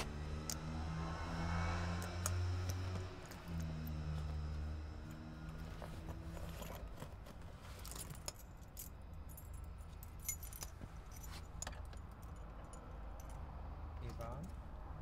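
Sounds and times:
keys jangling and clinking: 2.2 - 4.4, 6.1 - 13.5.

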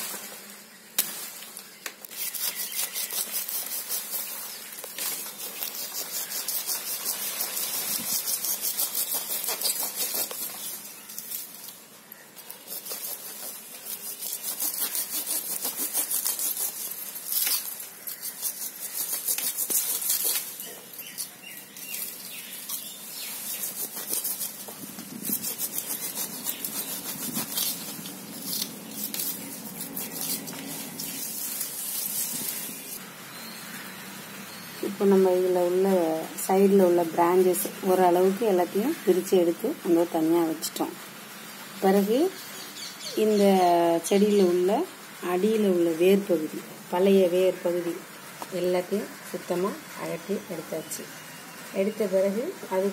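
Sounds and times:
roots tearing and rustling: 1.0 - 33.0
knife cutting roots: 1.8 - 11.8, 12.4 - 32.7.

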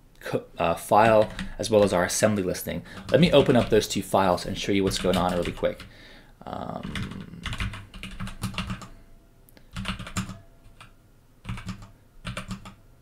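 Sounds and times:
computer keyboard typing: 1.0 - 2.0, 2.9 - 3.9, 4.8 - 5.9, 6.8 - 8.9, 9.7 - 12.8.

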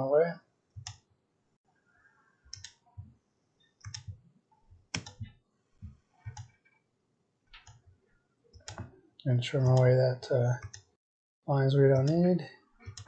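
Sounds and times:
computer mouse clicking: 0.8 - 1.0, 2.5 - 2.8, 3.8 - 4.2, 4.9 - 5.3, 6.2 - 6.8, 7.5 - 7.9, 8.5 - 8.9, 10.6 - 10.9.

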